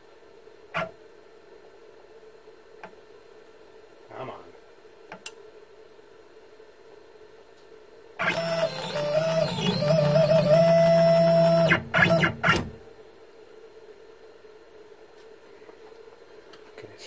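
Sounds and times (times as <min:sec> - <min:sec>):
stepper motor whining: 0:08.2 - 0:12.8.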